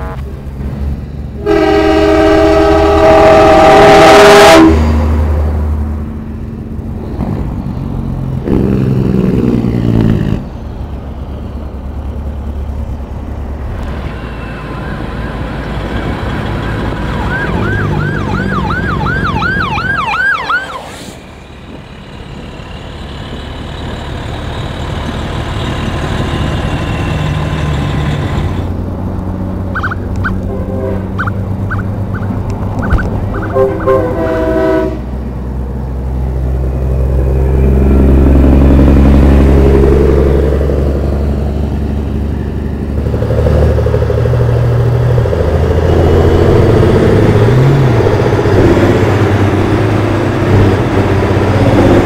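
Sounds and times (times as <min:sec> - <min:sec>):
truck air horn blasting: 0:00.0 - 0:00.3, 0:01.4 - 0:04.9, 0:29.8 - 0:31.4, 0:33.4 - 0:35.2
diesel trucks rumbling past: 0:00.0 - 0:52.0
police siren yelping: 0:14.0 - 0:20.9, 0:29.7 - 0:30.4.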